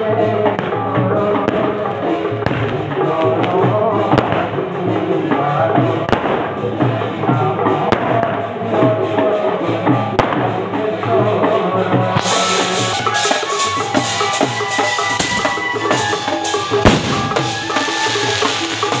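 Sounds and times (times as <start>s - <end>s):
drum-heavy music: 0.0s - 19.0s
sharp bang: 12.2s - 19.0s.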